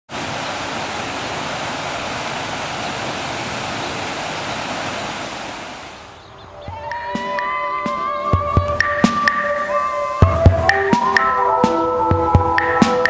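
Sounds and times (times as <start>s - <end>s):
water rushing over a weir: 0.1s - 6.2s.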